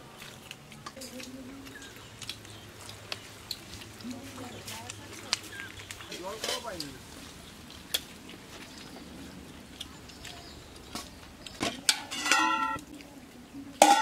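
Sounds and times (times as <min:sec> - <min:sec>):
metal bowls clinking: 0:11.6 - 0:12.8, 0:13.8 - 0:14.0.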